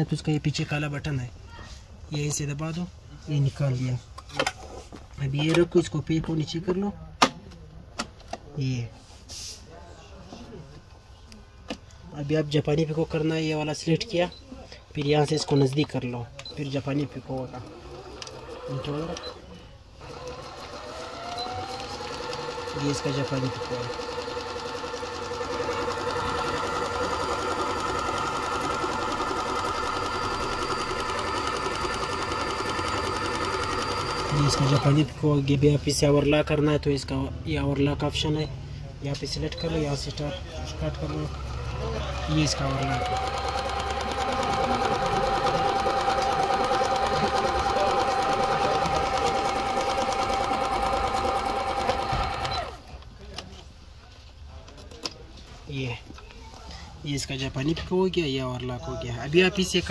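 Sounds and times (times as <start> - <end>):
sewing machine running: 17.3 - 19.4, 20.0 - 35.1, 40.8 - 52.8.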